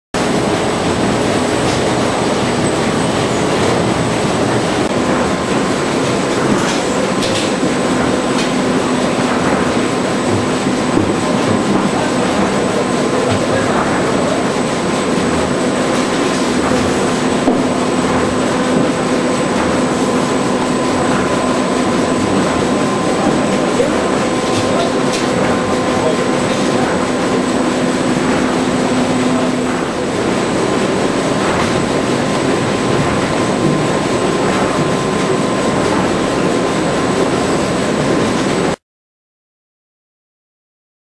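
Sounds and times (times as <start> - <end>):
machine clatter and whir: 0.2 - 38.8.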